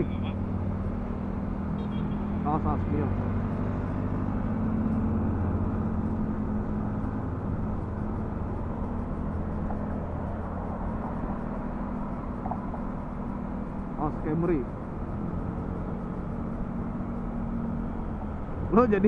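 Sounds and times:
motorcycle engine at low revs: 0.0 - 19.0
road and traffic noise: 0.0 - 19.0.

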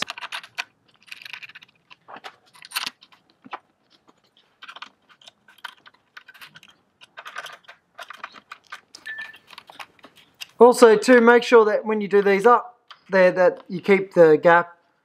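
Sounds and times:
hex key clicking and scraping: 0.0 - 10.6.

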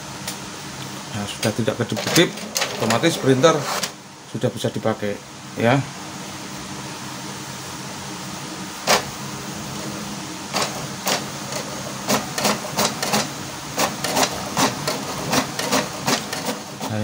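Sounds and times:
printer humming: 0.0 - 17.0
print mechanism clacking: 1.4 - 4.0, 8.8 - 9.1, 10.5 - 17.0.

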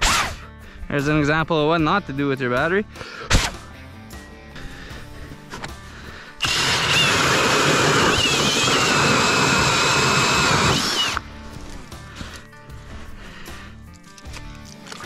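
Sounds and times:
auger grinding through ice: 6.4 - 11.2
cordless drill motor whine: 6.4 - 11.2.

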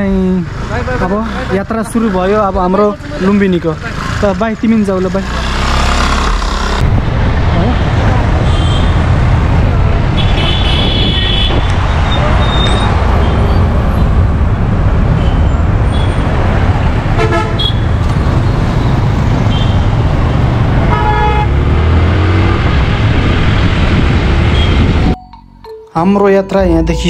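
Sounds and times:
traffic noise: 0.0 - 25.2
wind noise: 6.8 - 17.0, 21.8 - 25.2
vehicle horns honking: 8.4 - 9.0, 10.2 - 11.7, 17.2 - 17.9, 20.8 - 21.6, 24.5 - 25.2.

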